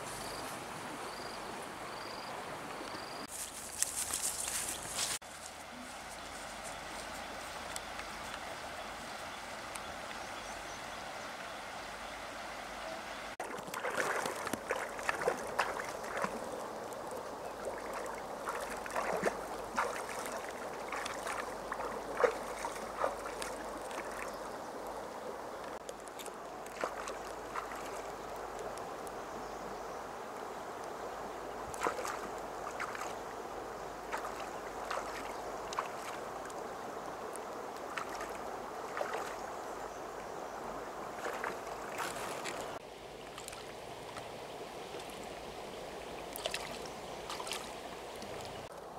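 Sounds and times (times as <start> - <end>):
river water running: 0.0 - 48.9
hands splashing in water: 13.4 - 16.5, 17.7 - 24.3, 37.8 - 39.4, 41.2 - 43.7, 46.4 - 48.6.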